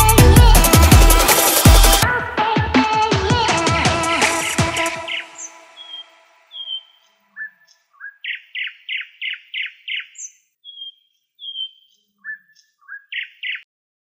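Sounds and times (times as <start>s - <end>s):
songbird singing: 4.8s - 13.7s.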